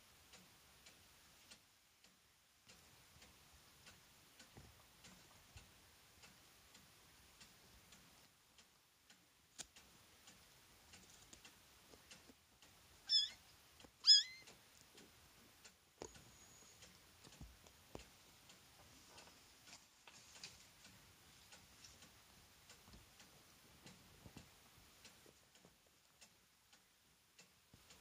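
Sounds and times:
faint clicks: 0.2 - 28.0
kittens squeaky mews: 13.1 - 13.4, 14.0 - 14.5.

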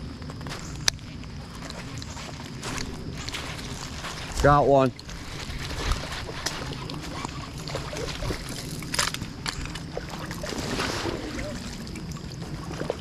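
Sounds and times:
water splashing: 3.5 - 13.0.

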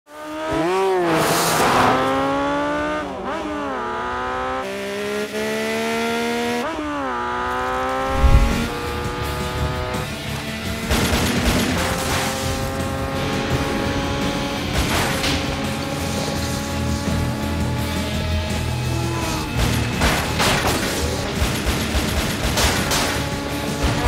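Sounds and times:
motorcycle engines revving: 0.1 - 20.0, 20.9 - 24.0
heavy low thump: 8.1 - 8.9.

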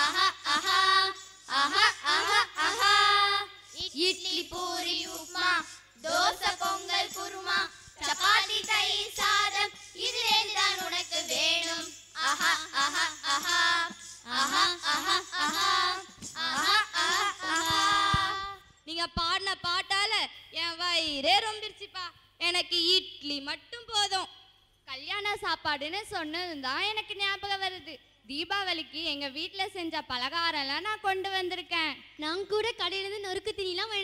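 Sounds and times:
girls singing together: 0.0 - 18.7.

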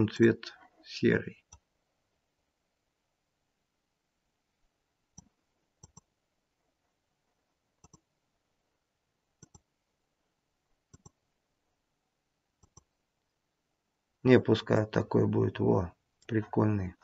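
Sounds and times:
computer mouse clicks: 5.2 - 6.1, 7.8 - 8.1, 9.4 - 9.7, 10.9 - 11.2, 12.6 - 12.9.

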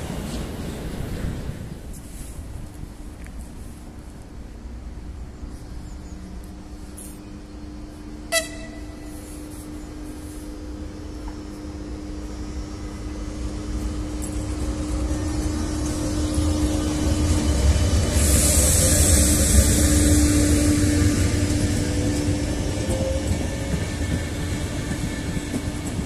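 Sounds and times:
electric train passing: 0.0 - 26.0
short train horn toot: 8.3 - 9.6.

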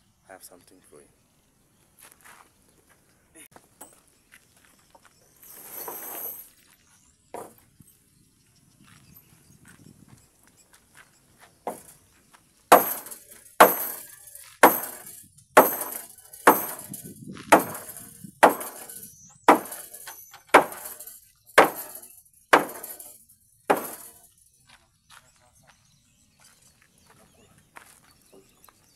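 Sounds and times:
hammer striking nails into wood: 11.7 - 11.9, 12.7 - 24.1.

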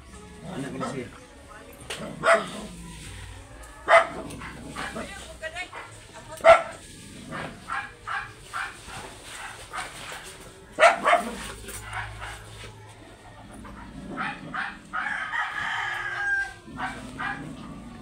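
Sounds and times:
dog barking: 2.1 - 2.8, 3.8 - 12.7, 13.7 - 15.2, 16.7 - 17.7
rooster crowing: 12.6 - 17.4.

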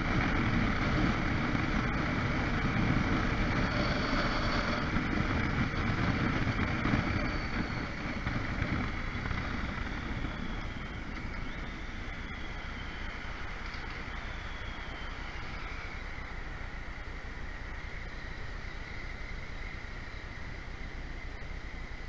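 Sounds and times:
motorcycle engine: 0.0 - 12.6
road noise: 0.0 - 22.0
wind buffeting microphone: 0.0 - 22.0.

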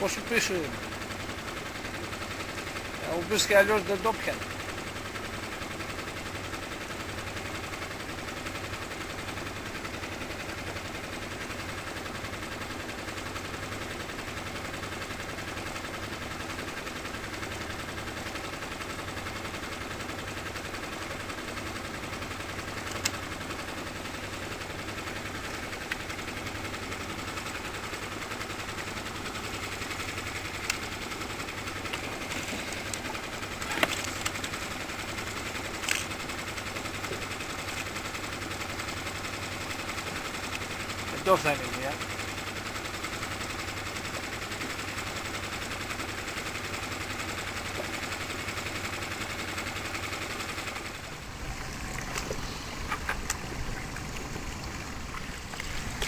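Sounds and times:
outboard motor droning: 0.0 - 56.0
sharp clicks: 22.8 - 23.2.

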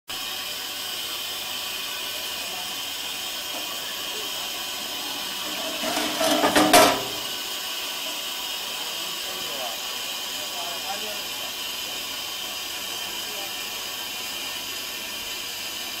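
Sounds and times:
steam locomotive hissing: 0.1 - 16.0
loud metallic clanks: 4.4 - 7.5.

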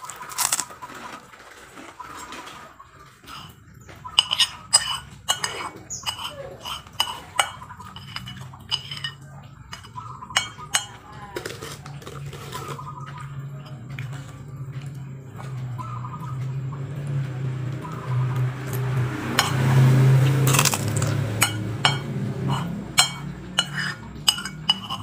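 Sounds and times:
low steady hum: 0.0 - 25.0
cutlery clinking on dishes: 3.3 - 15.6, 19.4 - 25.0.

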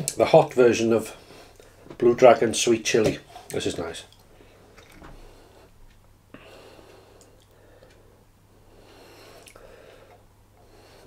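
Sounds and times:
quiet breathing: 1.0 - 2.0, 4.2 - 11.0.

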